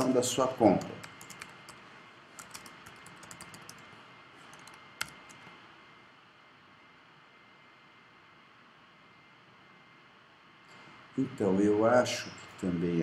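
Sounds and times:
low hiss: 0.0 - 13.0
typing on computer keyboard: 0.7 - 1.8, 2.4 - 3.9, 4.5 - 5.5.

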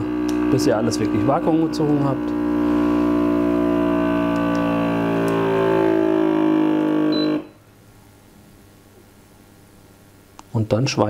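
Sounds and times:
vacuum sealer pump humming: 0.0 - 7.6
short high beep: 7.1 - 7.6.

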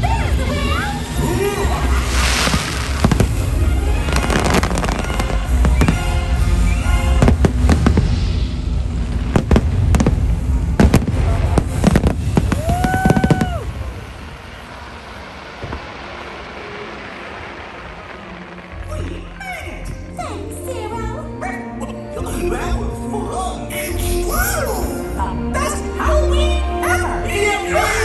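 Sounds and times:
show music: 0.0 - 14.3, 15.6 - 28.0
fireworks bangs and crackles: 0.0 - 20.2.

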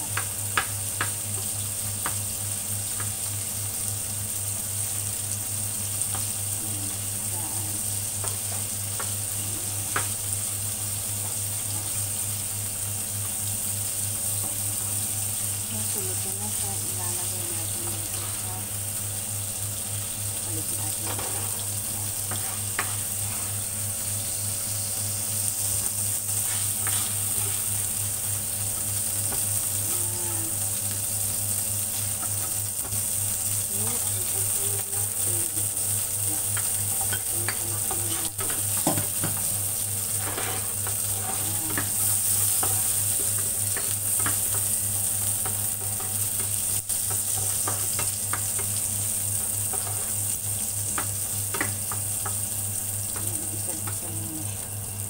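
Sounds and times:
oil sizzling in a frying pan: 0.0 - 55.0
spatula scraping a pan: 21.1 - 23.6, 26.3 - 27.9, 40.1 - 44.7.

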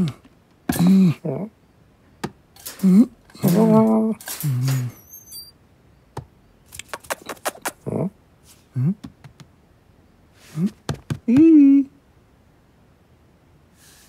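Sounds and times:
metal wire door clicks and rattles: 2.6 - 5.5
low voiced murmurs: 7.7 - 9.0.

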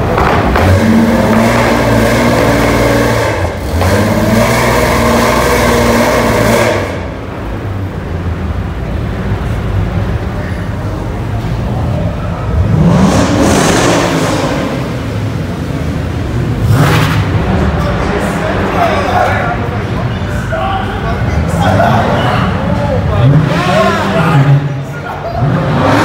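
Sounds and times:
car engine revving: 0.0 - 26.0
another engine revving: 0.1 - 7.3, 12.5 - 18.7, 25.4 - 26.0.

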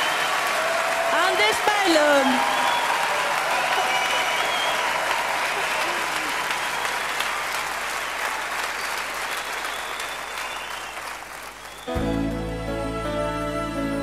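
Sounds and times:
audience applauding: 0.0 - 13.2
soft ballad music: 11.9 - 14.0.

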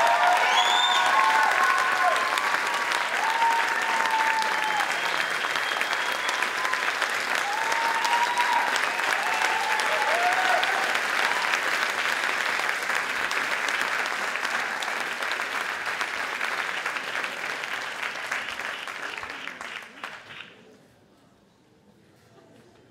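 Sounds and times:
audience cheering: 0.0 - 12.4
audience applauding: 0.0 - 20.6.

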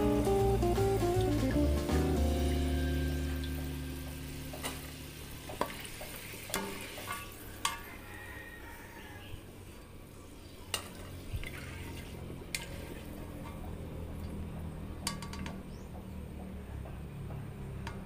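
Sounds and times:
fries sizzling in oil: 0.0 - 14.5
skimmer clicking against wok: 15.0 - 16.6, 17.7 - 18.0.

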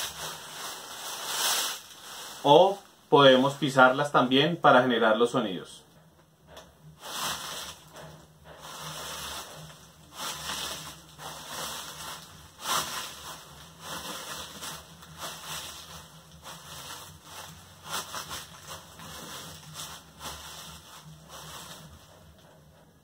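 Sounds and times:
footsteps crunching dry leaves: 0.0 - 3.6, 7.0 - 22.2
plastic bags rustling: 0.0 - 3.9, 6.9 - 22.6.

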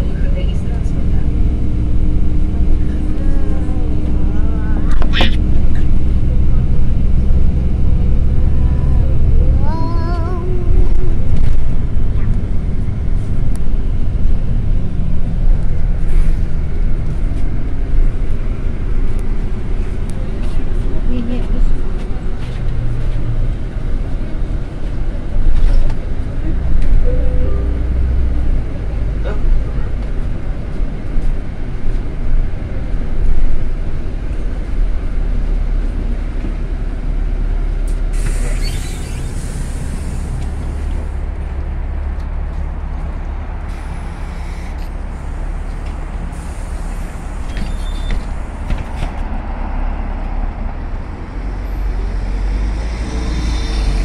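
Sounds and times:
bus engine and road rumble: 0.0 - 54.0
compressed air hiss: 38.1 - 40.4.

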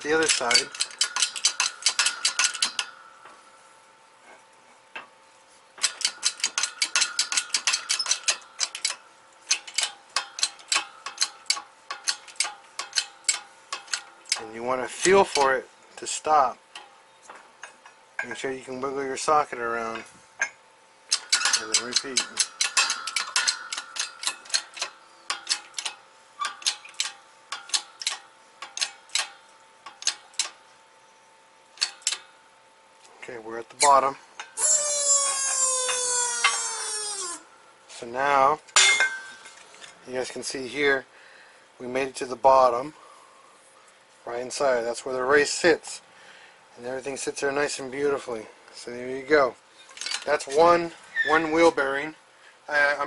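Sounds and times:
hydraulic press metallic clicks: 0.1 - 3.0, 5.8 - 14.5, 19.9 - 30.6, 31.8 - 32.3, 33.8 - 37.4.

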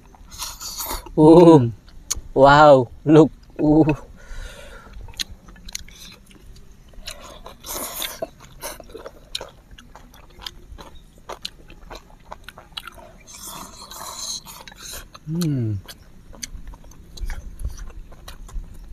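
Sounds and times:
wet chewing and mouth clicks: 4.7 - 18.9.

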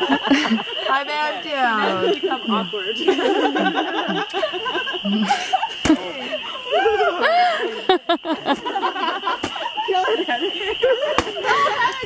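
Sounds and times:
people laughing and whooping: 0.0 - 12.0.

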